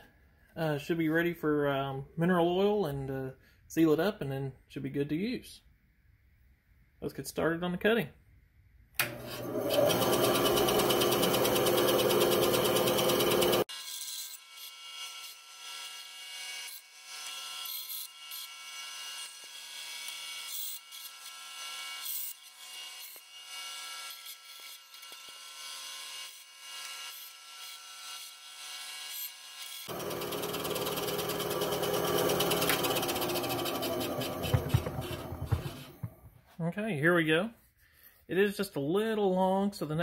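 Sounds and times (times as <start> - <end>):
bandsaw cutting wood: 9.0 - 36.2.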